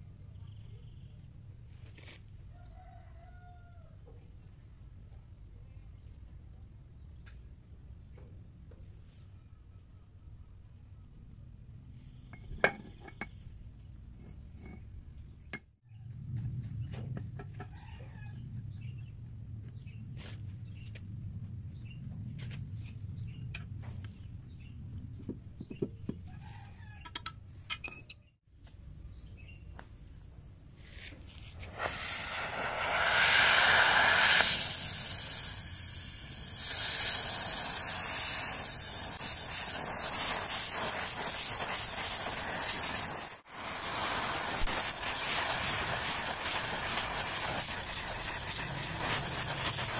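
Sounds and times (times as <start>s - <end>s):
gas welding torch hissing: 31.5s - 49.9s.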